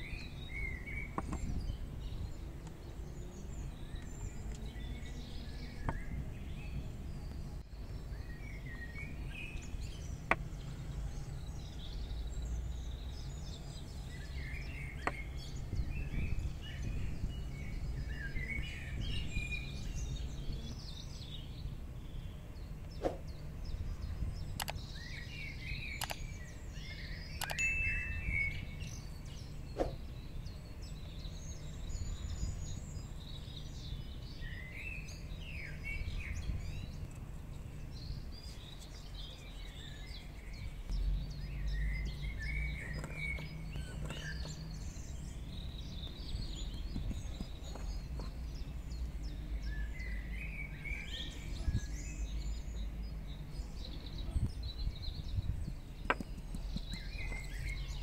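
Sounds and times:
birds chirping: 0:00.0 - 0:58.0
sharp clicks: 0:24.5 - 0:24.9, 0:25.9 - 0:26.3, 0:27.4 - 0:27.6.

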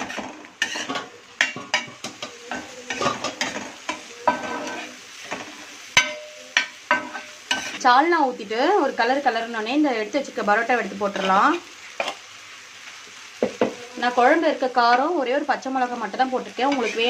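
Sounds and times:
spatula scraping and knocking on griddle: 0:00.0 - 0:07.8, 0:13.4 - 0:13.9, 0:16.6 - 0:17.0
egg mixture sizzling: 0:00.0 - 0:17.0.

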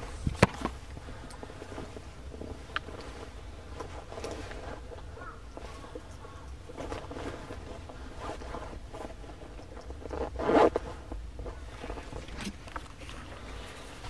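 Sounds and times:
handling noises: 0:00.0 - 0:14.0
zipper being pulled: 0:06.8 - 0:11.1.

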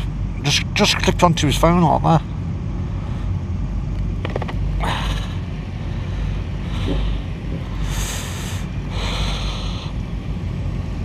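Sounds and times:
motorcycle engine rumbling: 0:03.6 - 0:09.0.

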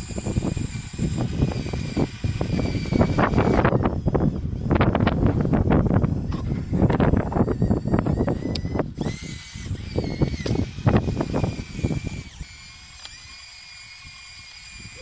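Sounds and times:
toy bulldozer motors whining: 0:00.0 - 0:15.0.

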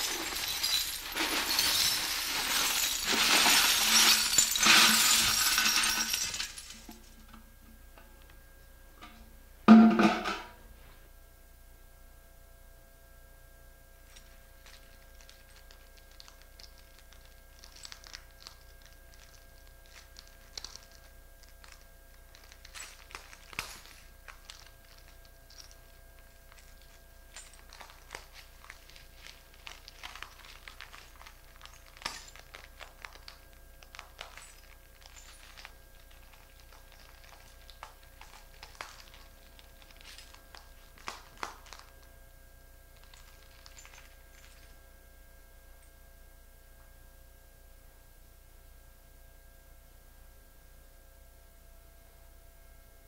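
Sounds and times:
footsteps crunching broken glass: 0:00.0 - 0:07.2, 0:14.1 - 0:42.1, 0:43.0 - 0:44.8.

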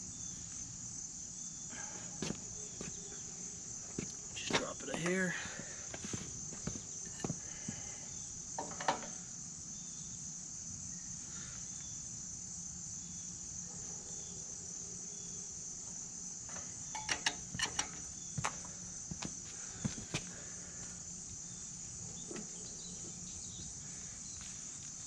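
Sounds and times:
high-pitched insect chorus: 0:00.0 - 0:25.0
sharp clicks and knocks: 0:16.5 - 0:18.6.

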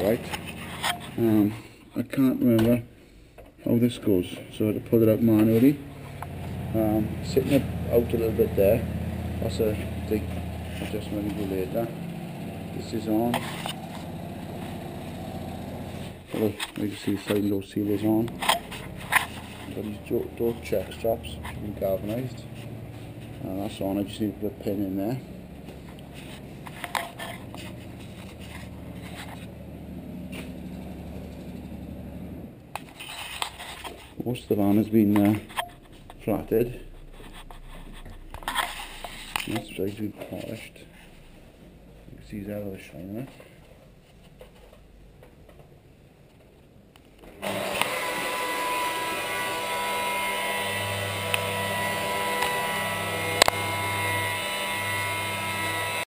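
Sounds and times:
low mechanical hum: 0:04.6 - 0:56.0
electric polisher motor whine: 0:06.0 - 0:16.2, 0:47.4 - 0:56.0.

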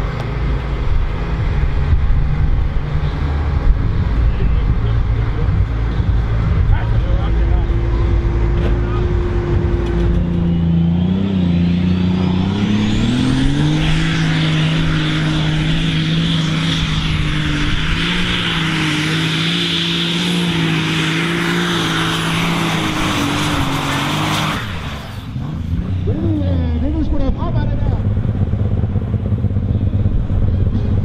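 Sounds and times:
diesel engine at full throttle: 0:00.0 - 0:31.0.

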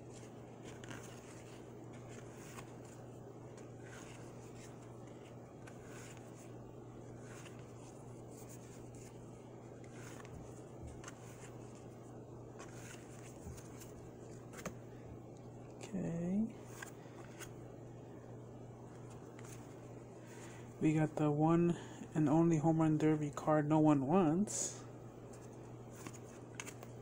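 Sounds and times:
steady low hum: 0:00.0 - 0:27.0
cards being flipped through: 0:00.1 - 0:14.8, 0:16.6 - 0:17.6, 0:18.9 - 0:19.8, 0:25.2 - 0:27.0.

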